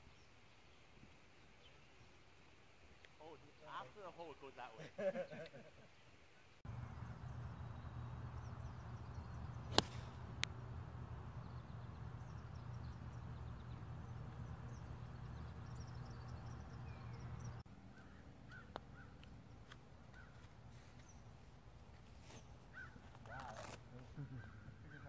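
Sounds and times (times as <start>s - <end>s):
birds chirping: 6.7s - 19.2s
golf club striking ball: 6.8s - 17.5s
faint click: 9.7s - 10.6s.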